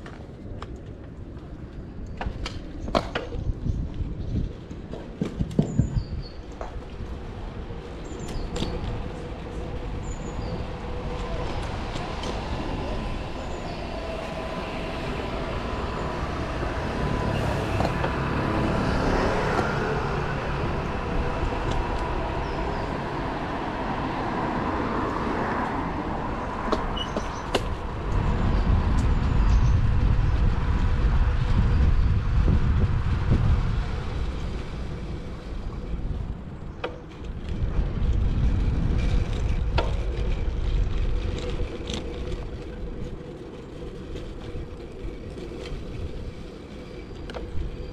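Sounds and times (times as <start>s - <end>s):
passing cars: 0.0s - 47.9s
low rumble: 8.7s - 46.5s.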